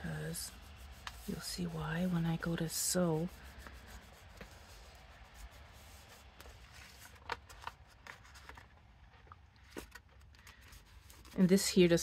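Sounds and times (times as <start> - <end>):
paper rustling: 3.2 - 8.8, 9.7 - 11.8.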